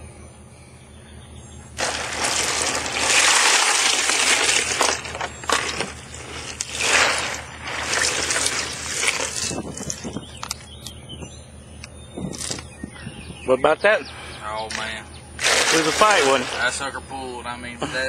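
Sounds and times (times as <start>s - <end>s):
water splashing and sloshing: 1.8s - 10.4s, 14.7s - 16.9s.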